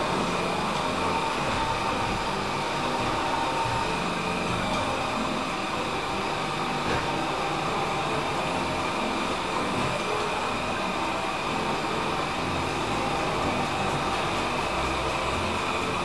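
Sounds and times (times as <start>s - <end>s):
robot vacuum whirring: 0.0s - 16.0s.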